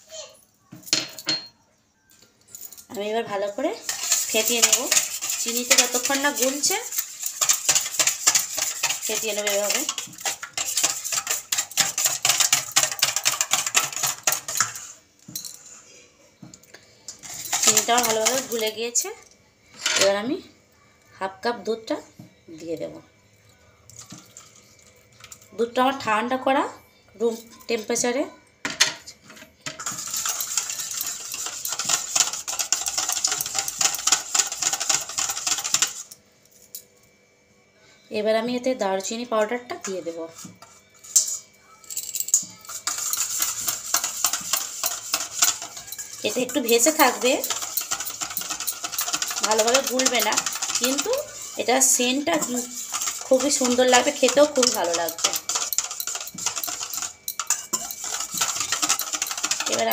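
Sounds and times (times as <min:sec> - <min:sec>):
whisk beating in metal bowl: 0:03.8 - 0:15.0, 0:17.2 - 0:18.8, 0:29.7 - 0:36.2, 0:42.3 - 0:59.9.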